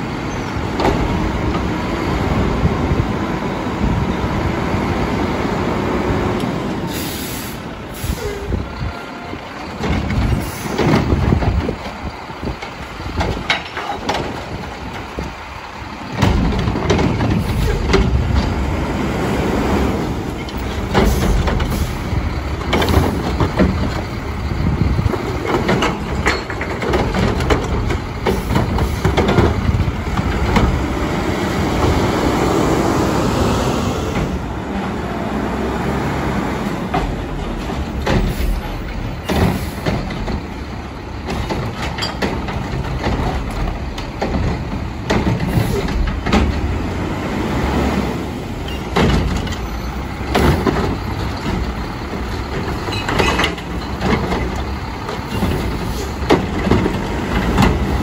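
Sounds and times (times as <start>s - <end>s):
diesel engine running: 0.0s - 58.0s
garbage truck arm clanking: 20.3s - 30.9s, 36.8s - 47.0s, 48.5s - 58.0s.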